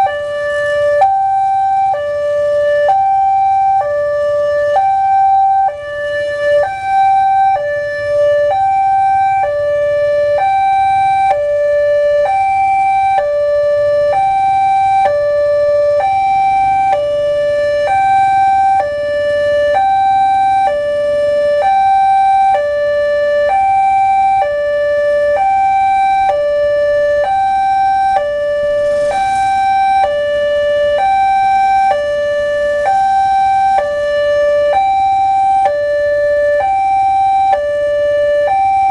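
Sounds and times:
level crossing two-tone alarm: 0.0 - 38.9.

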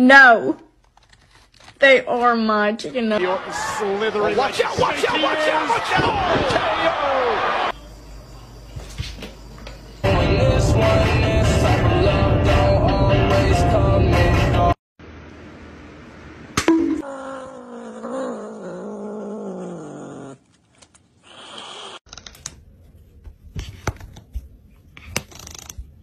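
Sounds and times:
clicks and scratches: 0.8 - 1.8, 23.6 - 26.0.

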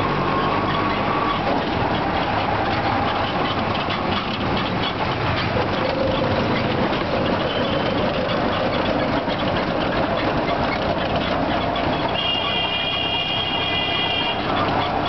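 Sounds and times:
auto-rickshaw engine running: 0.0 - 15.0
road and traffic noise: 0.0 - 15.0
vehicle horn: 12.1 - 14.5.

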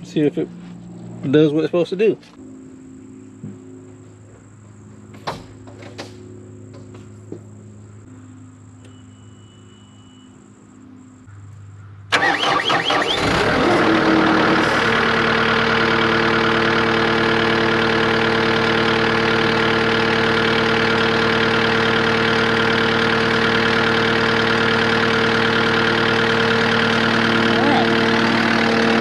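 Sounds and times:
diesel engine starting and idling: 12.0 - 29.0.

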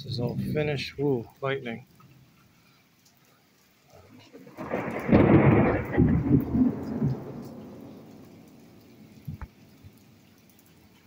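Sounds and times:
thunder rumbling and crackling: 0.0 - 1.2, 4.1 - 10.0
rain falling: 0.0 - 11.0.

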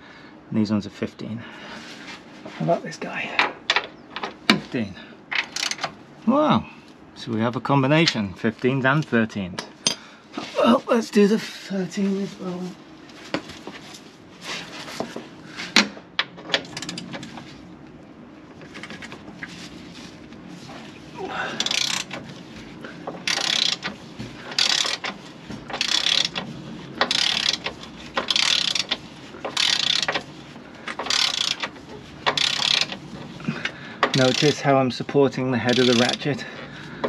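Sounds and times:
ratchet pawl clicking: 5.4 - 5.9, 21.6 - 22.2, 23.2 - 23.9, 24.5 - 30.3, 30.9 - 33.0, 34.0 - 34.6, 35.7 - 36.4.

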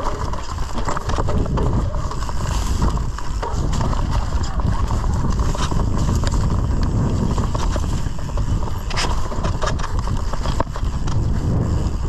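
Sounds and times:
bike chain and frame rattling: 0.0 - 12.0
wind buffeting microphone: 0.0 - 12.0.

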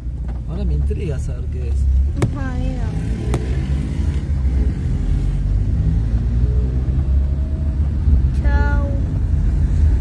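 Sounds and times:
car interior road and engine rumble: 0.0 - 10.0.

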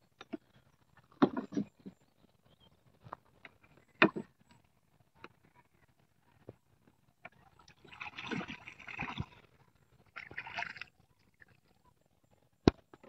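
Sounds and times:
water splashing against wooden boat: 7.3 - 11.5.

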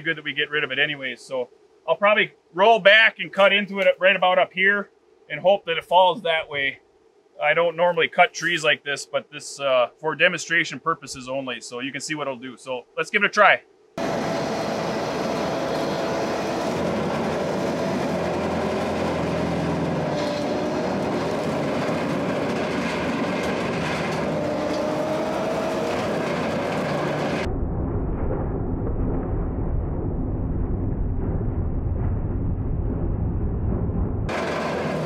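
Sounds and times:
mower cutting into tree trunk: 14.0 - 27.4, 34.3 - 35.0
brush mower blade whine: 14.0 - 27.5, 34.3 - 35.0
diesel engine running: 14.0 - 27.5, 32.5 - 35.0.

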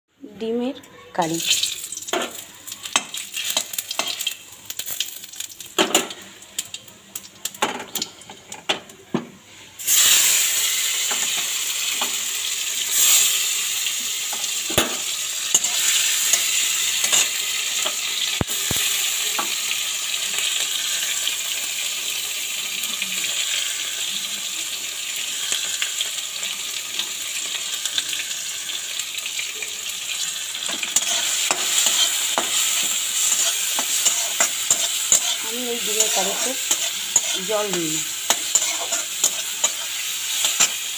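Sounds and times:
food sizzling in hot oil: 0.4 - 40.9
metal spatula scraping wok: 14.2 - 18.0, 30.3 - 40.9.

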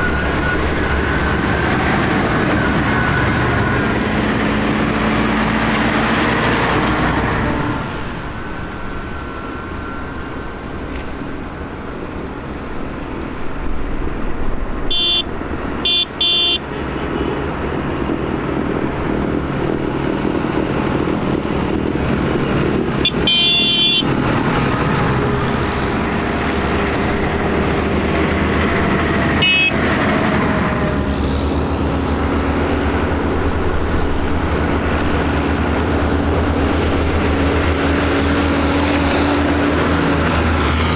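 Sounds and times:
tractor diesel engines running: 0.0 - 40.9
horn tooting: 14.9 - 16.8, 23.0 - 24.1, 29.4 - 29.9.

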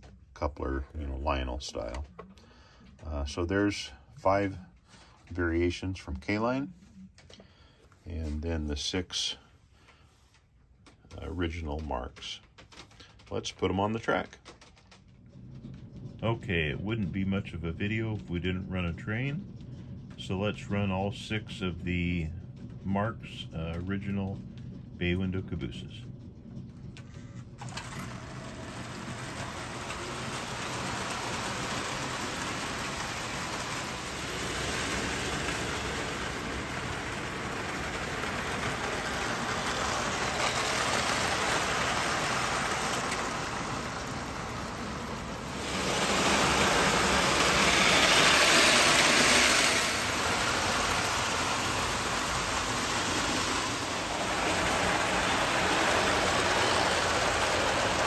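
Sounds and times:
toy train rolling on track: 27.6 - 58.0.

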